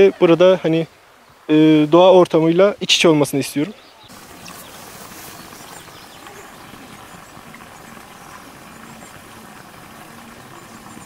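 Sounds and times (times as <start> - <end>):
outdoor background noise: 0.0 - 11.0
faint bird chirps: 3.7 - 11.0.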